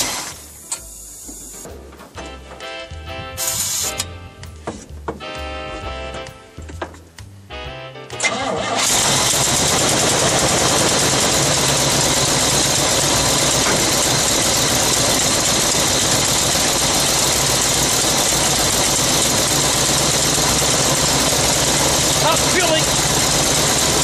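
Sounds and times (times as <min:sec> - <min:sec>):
engine running steadily: 0:08.2 - 0:24.0.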